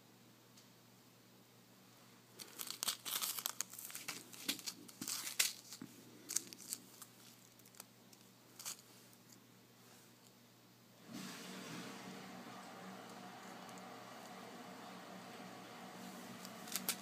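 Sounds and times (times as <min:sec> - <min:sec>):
plastic bags crinkling: 0:02.4 - 0:09.3, 0:16.5 - 0:17.0.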